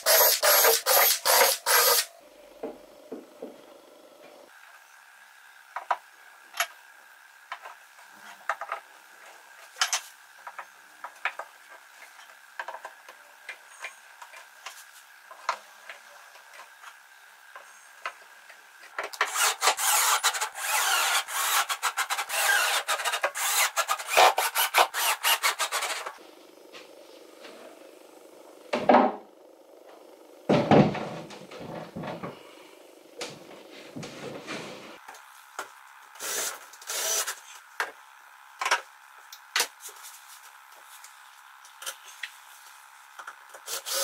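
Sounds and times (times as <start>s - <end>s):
loud rough rasping with clicks: 19.2s - 26.2s.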